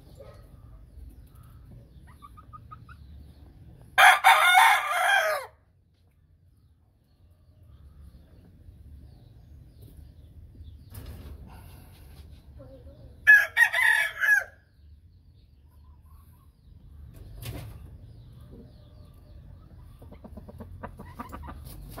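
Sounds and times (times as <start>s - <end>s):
rooster crowing: 4.0s - 5.6s, 13.3s - 14.6s
soft rapid clucking: 19.8s - 22.0s.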